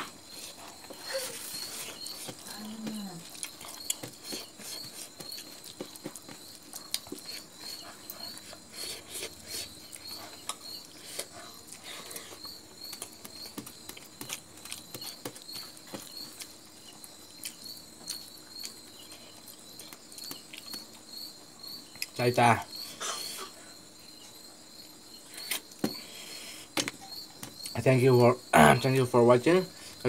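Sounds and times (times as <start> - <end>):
cricket trilling: 0.0 - 30.0
wet chewing and mouth clicks: 3.2 - 21.1.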